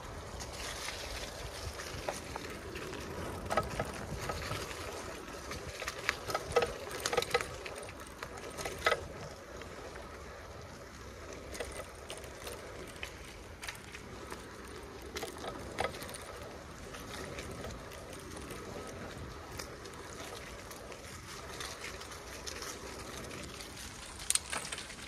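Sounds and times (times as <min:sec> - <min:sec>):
bicycle rattling over bumps: 0:00.0 - 0:25.0
bicycle tyre and wind noise: 0:00.0 - 0:25.0.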